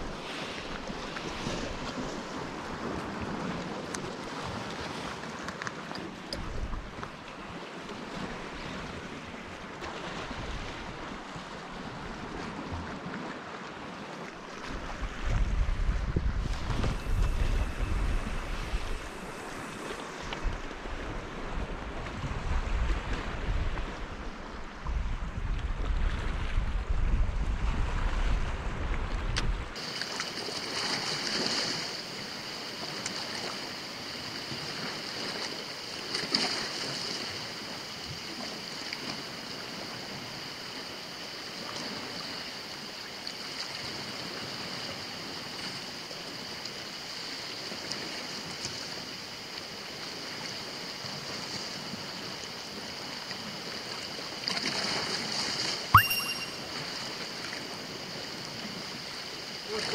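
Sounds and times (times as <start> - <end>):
surf on rocky shore: 0.0 - 25.0, 27.3 - 55.8, 56.5 - 59.9
sharp clack with ringing tone: 56.0 - 56.7.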